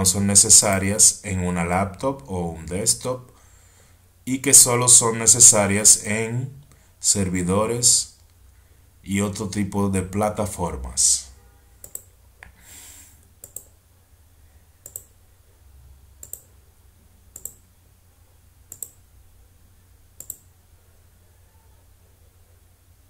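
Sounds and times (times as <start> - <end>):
faint low hum: 0.0 - 23.0
computer mouse double clicks: 11.8 - 12.1, 13.4 - 13.7, 14.8 - 15.1, 16.2 - 16.5, 17.4 - 17.6, 18.7 - 19.0, 20.2 - 20.5.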